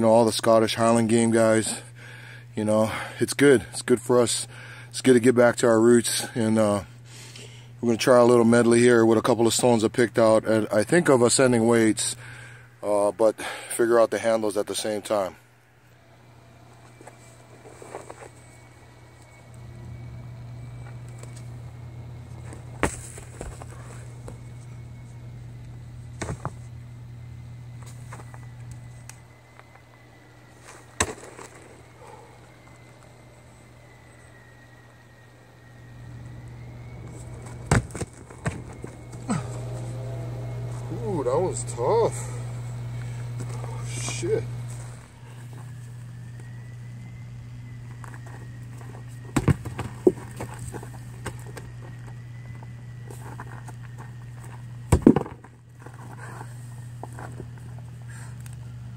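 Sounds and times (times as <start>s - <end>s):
steady low hum: 0.0s - 58.9s
heavy stone landing with a knock: 26.2s - 26.6s, 37.7s - 38.8s, 49.4s - 50.5s, 54.9s - 55.5s
footsteps on rough ground: 36.8s - 41.0s, 42.2s - 46.0s, 47.9s - 58.0s.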